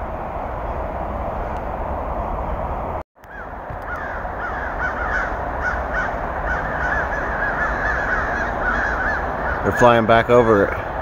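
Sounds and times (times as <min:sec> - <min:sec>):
steady low rumble: 0:00.0 - 0:11.0
crows cawing: 0:03.3 - 0:11.0.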